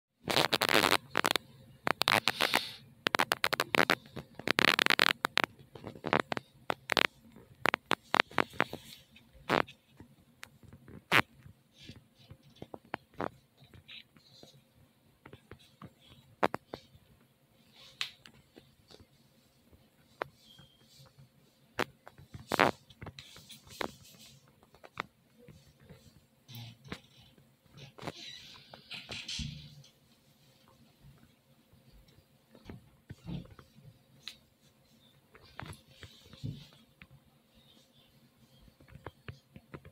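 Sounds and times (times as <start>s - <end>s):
sketchbook handling taps and rustles: 3.1s - 14.6s, 17.8s - 26.2s.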